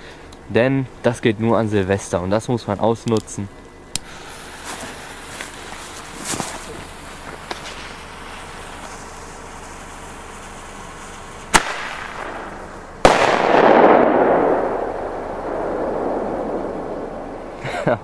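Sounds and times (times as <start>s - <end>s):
rolling echo off hills: 3.5s - 18.0s
firecracker fuse hissing: 4.0s - 17.9s
firecracker bangs: 11.5s - 17.6s.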